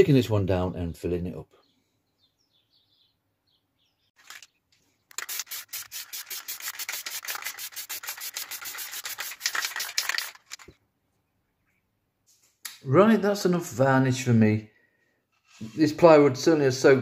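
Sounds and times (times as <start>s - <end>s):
aerosol spray hissing: 5.2s - 9.8s.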